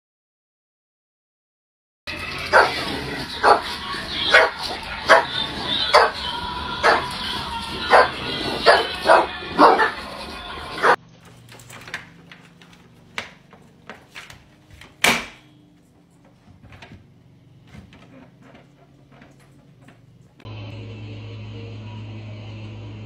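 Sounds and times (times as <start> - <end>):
dog barking loudly: 2.4 - 7.2, 7.8 - 11.0.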